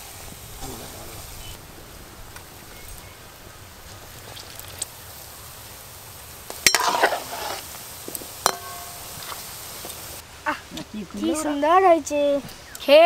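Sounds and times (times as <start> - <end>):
fritters sizzling in oil: 0.0 - 10.6
sharp metal knock with ring: 8.4 - 9.0.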